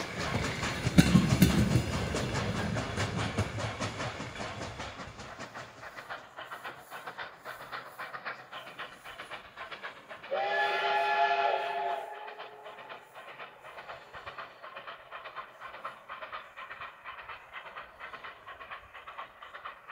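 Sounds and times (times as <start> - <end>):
steam train chugging on rails: 0.0 - 19.9
steam locomotive whistle: 10.3 - 12.7.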